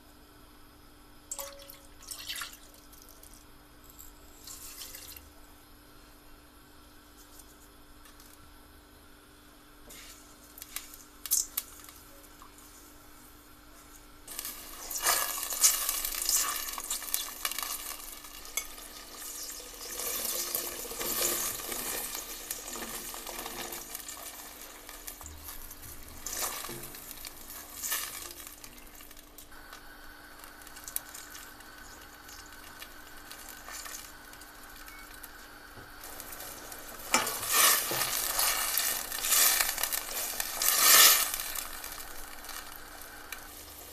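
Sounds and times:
brine sizzling and bubbling: 0.0 - 43.9
steady low hum: 23.8 - 43.9
spatula stirring in a pot: 36.0 - 43.9.

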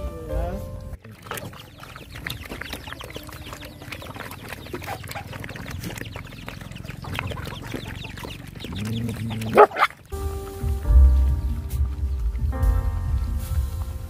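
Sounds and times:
dogs lapping wet food: 1.0 - 12.5.

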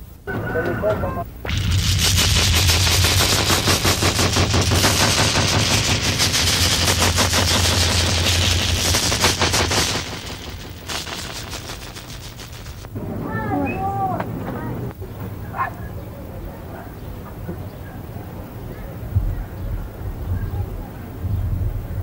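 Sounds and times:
low hum: 1.2 - 13.3
rapid rattle of sharp cracks: 1.4 - 13.0.

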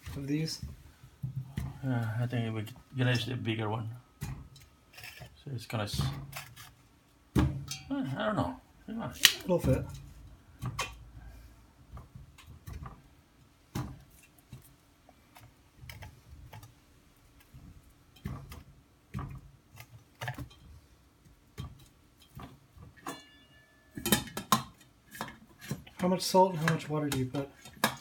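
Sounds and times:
corn knocking in metal pot: 7.3 - 7.9, 15.4 - 28.0
metal lid clinking on pot: 23.0 - 25.3.

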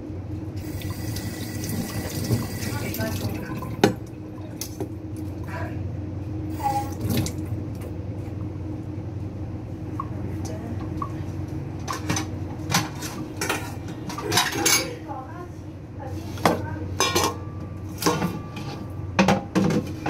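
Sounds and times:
steady low hum: 0.0 - 20.0
dishes and cutlery clinking: 11.9 - 15.0, 16.4 - 19.8.

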